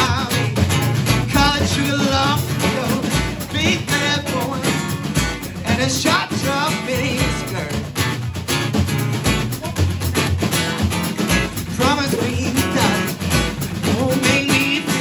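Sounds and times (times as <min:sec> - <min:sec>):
man singing: 0:00.0 - 0:08.1, 0:11.5 - 0:15.0
bass drum thumps: 0:00.0 - 0:15.0
snare drum beat: 0:00.0 - 0:15.0
strummed acoustic guitar: 0:00.0 - 0:15.0.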